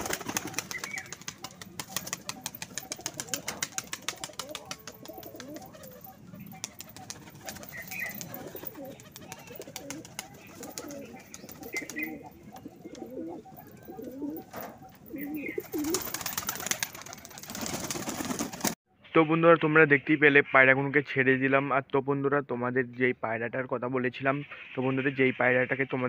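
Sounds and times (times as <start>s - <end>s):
pigeons cooing: 0.0s - 18.7s.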